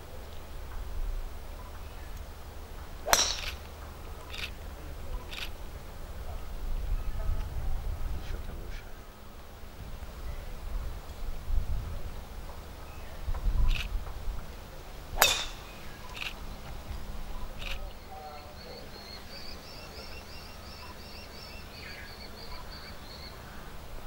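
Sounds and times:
golf club striking ball: 3.0s - 4.6s, 15.1s - 16.6s
bird chirping: 15.2s - 23.8s.

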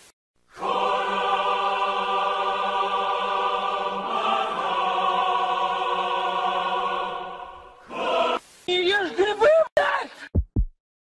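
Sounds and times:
choir singing sustained chords: 0.5s - 8.4s.

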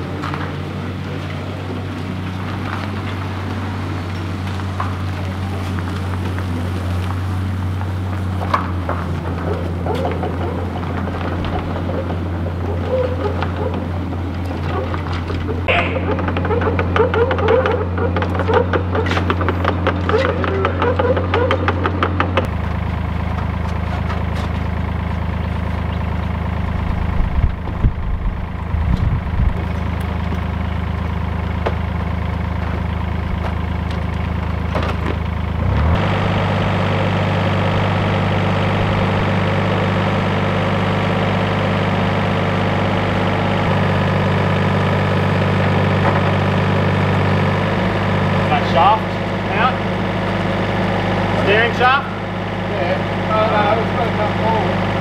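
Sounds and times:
diesel engine running: 0.0s - 55.0s
metal clanking: 8.3s - 22.5s.

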